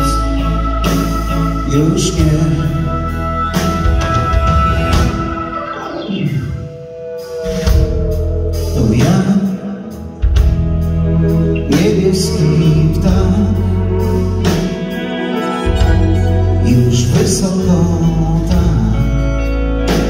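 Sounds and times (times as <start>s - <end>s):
man singing: 0.0s - 5.3s, 8.6s - 10.5s, 11.2s - 20.0s
blues harmonica: 0.0s - 9.2s, 10.0s - 20.0s
live blues band playing: 0.0s - 20.0s.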